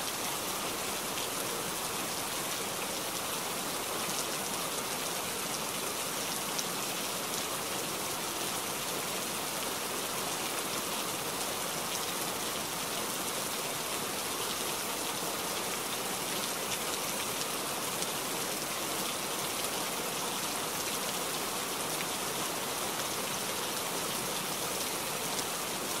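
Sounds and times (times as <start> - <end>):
rain falling on water: 0.0 - 26.0.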